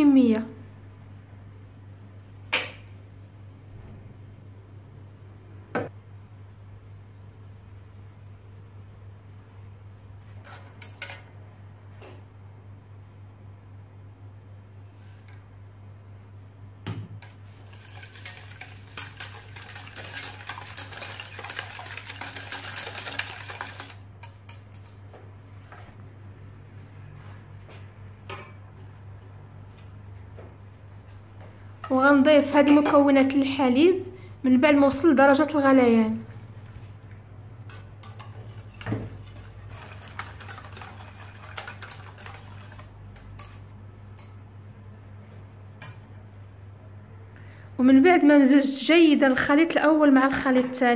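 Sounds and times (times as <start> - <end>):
whisk rattling against a pan: 17.2 - 25.0, 37.7 - 44.3.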